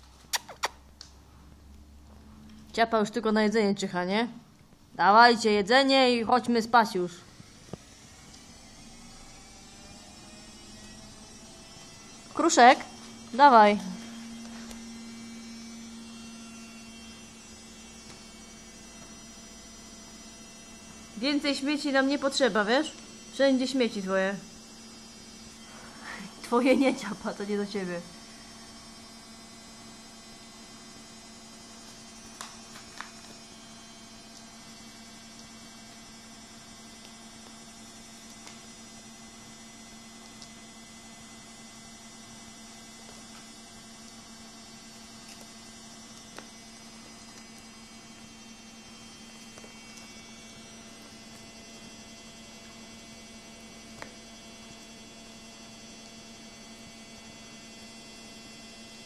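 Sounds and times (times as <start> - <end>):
low electrical hum: 0.0 - 59.0
faint whine: 6.6 - 31.0.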